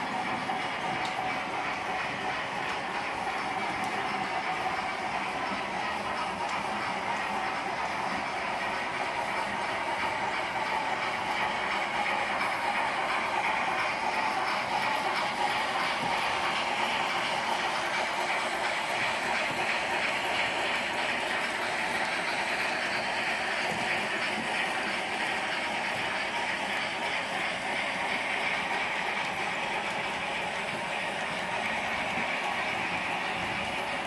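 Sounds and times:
model train wheels rattling on rail: 0:00.0 - 0:34.0.

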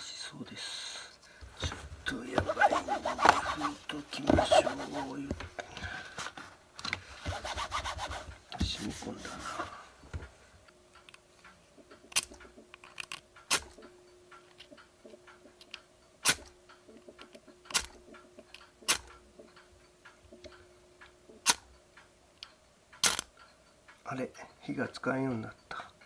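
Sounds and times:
striker scraping on flint: 0:02.2 - 0:05.4, 0:07.2 - 0:09.7
soft ticks: 0:10.2 - 0:26.0.

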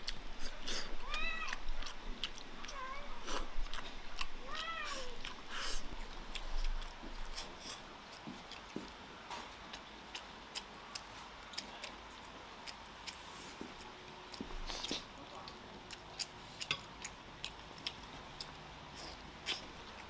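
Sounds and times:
cat meowing: 0:01.0 - 0:01.6, 0:02.6 - 0:03.2, 0:04.4 - 0:05.2.

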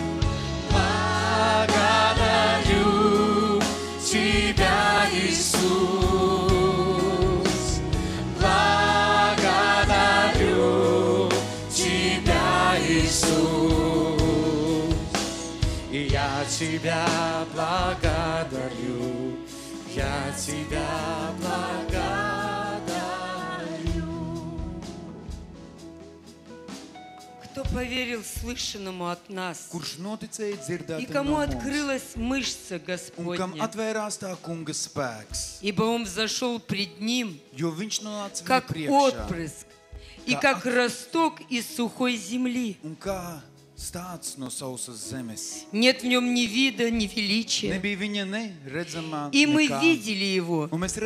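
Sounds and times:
group singing worship song: 0:00.0 - 0:25.3
keyboard accompaniment: 0:00.0 - 0:28.8, 0:30.5 - 0:50.1.

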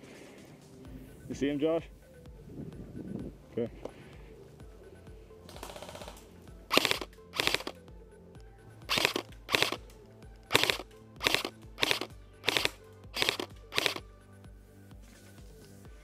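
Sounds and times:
airsoft rifle automatic bursts: 0:05.5 - 0:07.7, 0:08.9 - 0:09.8, 0:10.5 - 0:14.0.

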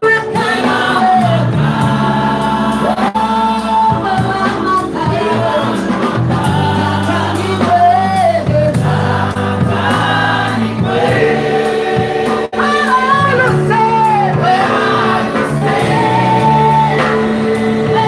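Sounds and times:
musical accompaniment: 0:00.0 - 0:18.0
backing choir: 0:00.2 - 0:18.0
woman singing into microphone: 0:12.5 - 0:14.7, 0:15.5 - 0:18.0.

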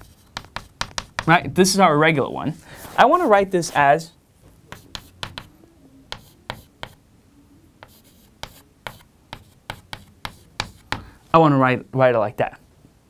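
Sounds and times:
chalk tapping and scratching: 0:00.0 - 0:01.4, 0:04.7 - 0:05.5, 0:06.1 - 0:07.0, 0:07.8 - 0:11.1.

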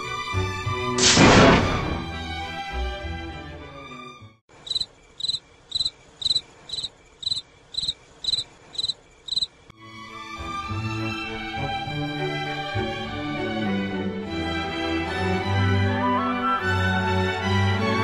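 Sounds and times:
background music: 0:00.0 - 0:04.4, 0:09.8 - 0:18.0
cricket chirps: 0:04.6 - 0:09.7.

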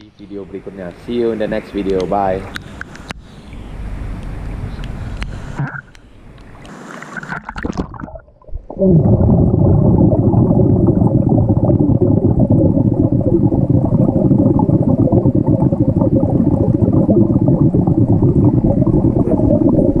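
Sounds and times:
air bubbles: 0:06.5 - 0:20.0
underwater rushing and gurgling: 0:06.5 - 0:20.0.

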